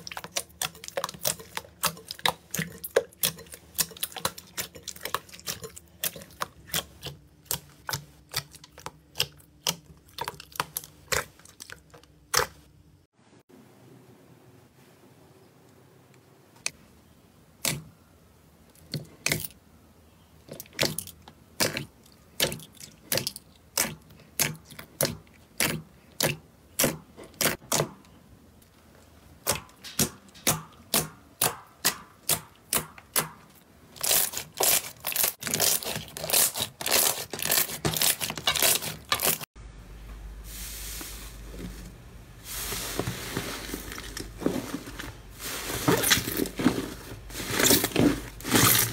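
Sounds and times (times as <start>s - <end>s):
slime squishing: 0.0s - 12.7s, 20.4s - 27.9s, 29.4s - 39.5s.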